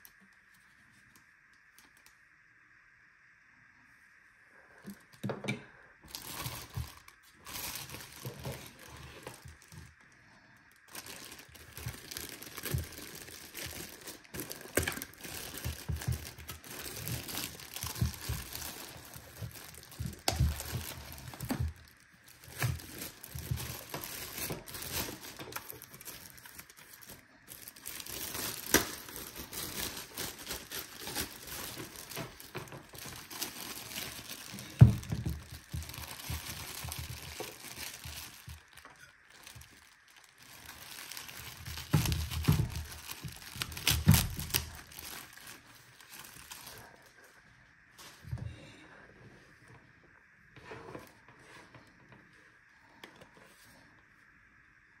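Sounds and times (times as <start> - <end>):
plastic bag crinkling: 6.0 - 47.4.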